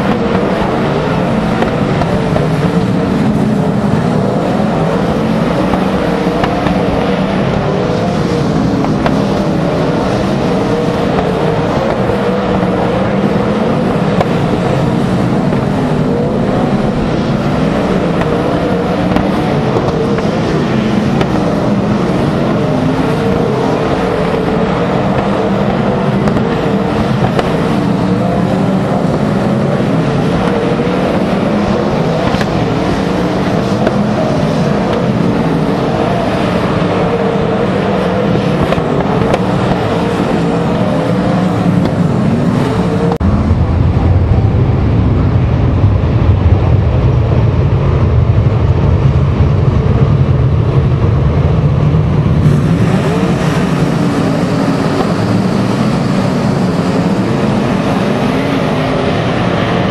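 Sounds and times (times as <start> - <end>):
racing car engines: 0.0 - 59.9.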